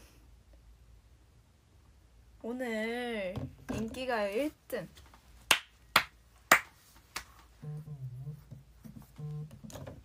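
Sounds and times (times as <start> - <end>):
hand claps: 5.5 - 7.4.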